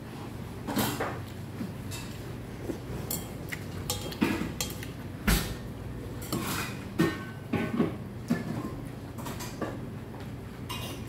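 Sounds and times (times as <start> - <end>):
chopsticks clinking on steel bowl: 3.0 - 5.0.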